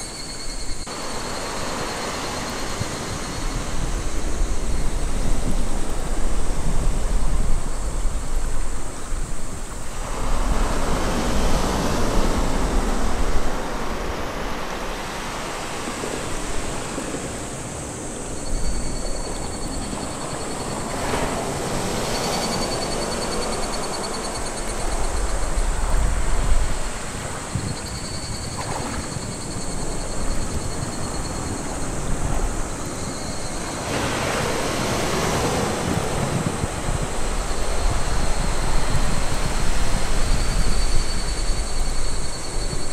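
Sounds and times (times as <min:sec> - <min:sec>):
thin steady high tone: 0:00.0 - 0:05.4, 0:17.9 - 0:25.8, 0:27.4 - 0:33.9
wind buffeting microphone: 0:00.0 - 0:42.9
surf washing on beach: 0:00.8 - 0:42.9.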